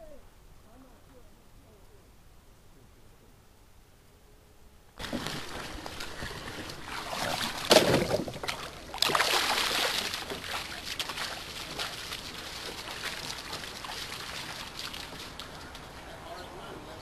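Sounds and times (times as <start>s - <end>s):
loud water splashes: 5.0s - 15.6s
person wading through shallow water: 5.0s - 16.2s.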